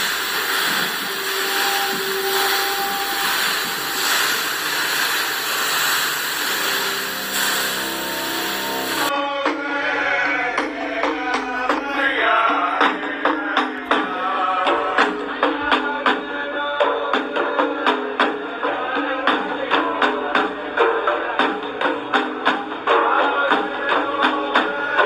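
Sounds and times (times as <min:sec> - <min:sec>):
water rushing down fountain wall: 0:00.0 - 0:09.1
men chanting: 0:07.9 - 0:25.0.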